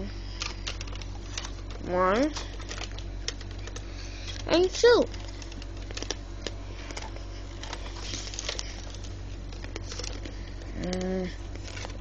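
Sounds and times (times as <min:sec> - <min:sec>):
steady low hum: 0:00.0 - 0:12.0
plastic toy clicks and rustles: 0:00.4 - 0:06.2.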